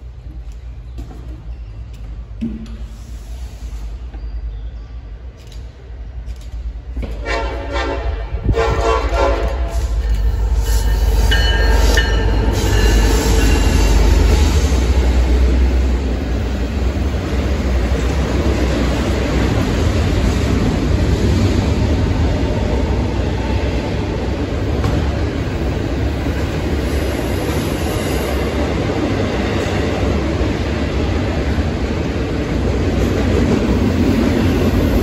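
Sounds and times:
diesel locomotives: 0.0s - 35.0s
locomotive horn: 7.2s - 10.0s
freight cars rumbling and clattering: 8.5s - 35.0s.

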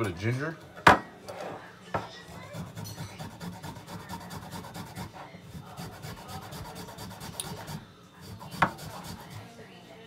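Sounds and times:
ginger grated on metal grater: 2.3s - 9.5s.

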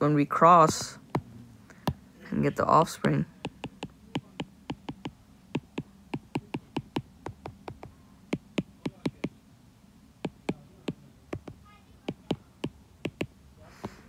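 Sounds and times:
stylus tapping on glass screen: 1.8s - 2.0s, 3.0s - 9.4s, 10.2s - 14.0s.

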